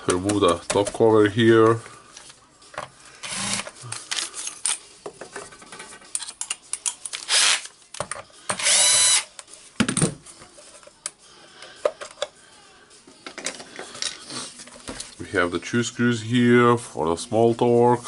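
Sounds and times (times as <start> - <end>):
cordless screwdriver motor whine: 3.3 - 3.6, 8.6 - 9.3.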